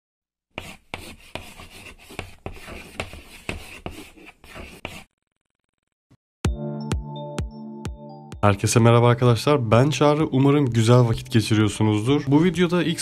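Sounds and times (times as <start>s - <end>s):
chalk scratching on a board: 0.5s - 5.1s
music: 6.4s - 13.0s.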